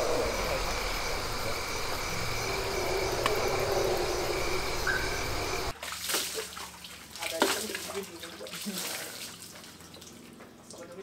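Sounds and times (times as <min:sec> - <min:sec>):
crickets trilling: 0:00.0 - 0:05.7
low background rumble: 0:00.0 - 0:05.7.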